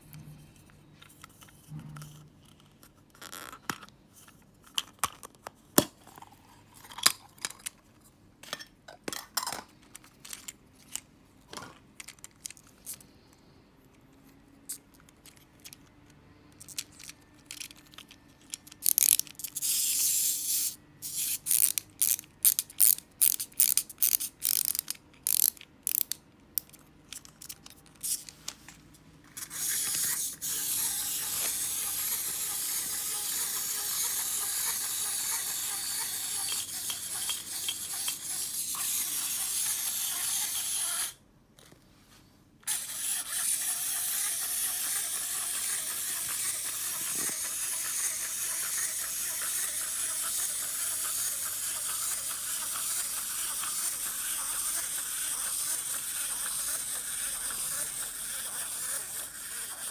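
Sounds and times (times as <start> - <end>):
wind-up toy clockwork whirring: 16.6 - 26.8, 29.4 - 41.2, 42.6 - 59.9.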